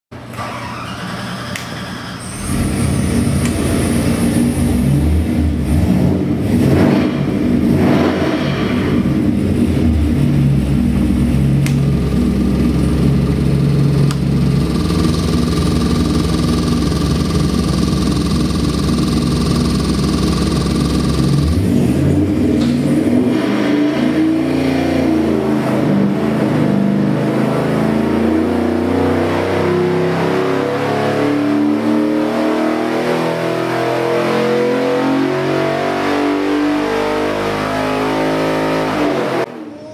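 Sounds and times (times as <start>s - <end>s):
engine revving up: 0.4s - 39.7s
engine idling: 9.1s - 22.9s.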